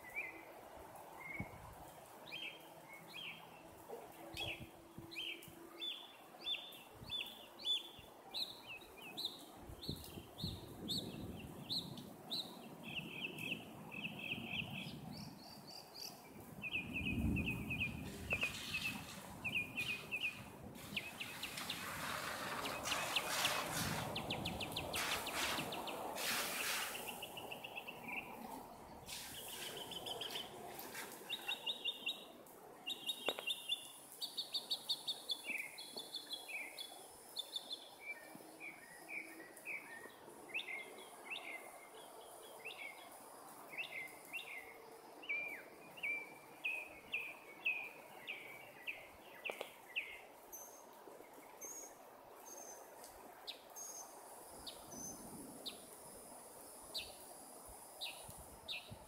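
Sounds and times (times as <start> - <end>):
faint outdoor background noise: 0.0 - 59.0
bird chirping: 4.4 - 41.7.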